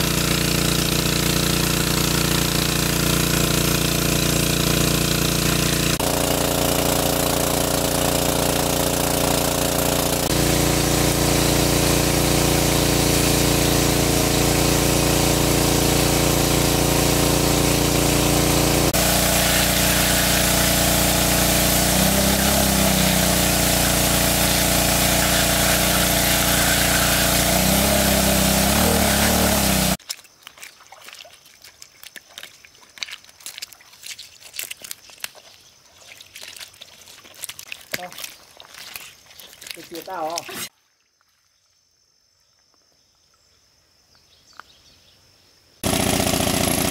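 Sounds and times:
engine-driven water pump running: 0.0s - 30.0s, 31.0s - 40.7s, 45.8s - 46.9s
wet slaps and trickling: 30.0s - 40.7s.

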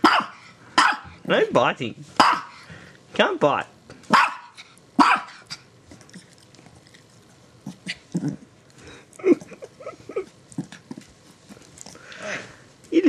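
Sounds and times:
small dog growling: 5.9s - 12.5s.

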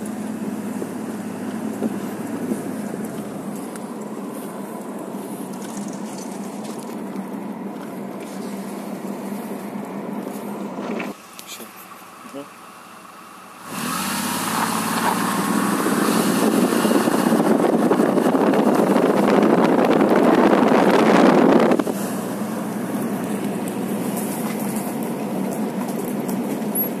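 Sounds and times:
car exhaust: 0.0s - 27.0s
tyres on gravel: 0.0s - 27.0s
wind: 0.0s - 27.0s.

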